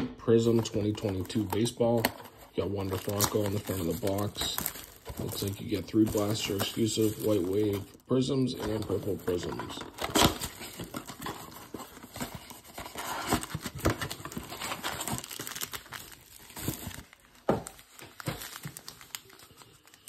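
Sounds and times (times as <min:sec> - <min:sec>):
foil packs rustling: 0:00.5 - 0:20.0
plastic shrink wrap crinkling: 0:00.5 - 0:20.0
cardboard box being opened: 0:08.6 - 0:17.2.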